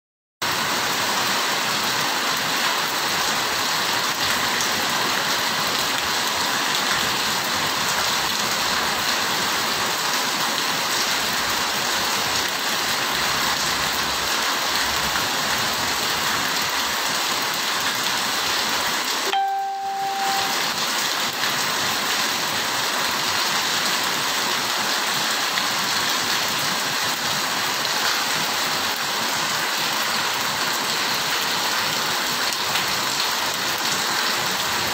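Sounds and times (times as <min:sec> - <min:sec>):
heavy rain on paving and roofs: 0:00.4 - 0:34.9
short tone: 0:19.3 - 0:20.8.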